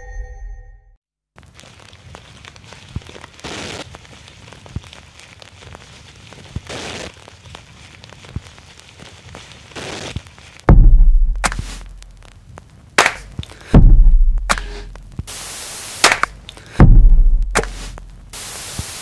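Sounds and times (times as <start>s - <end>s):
crackling hiss with clicks: 1.4s - 19.0s.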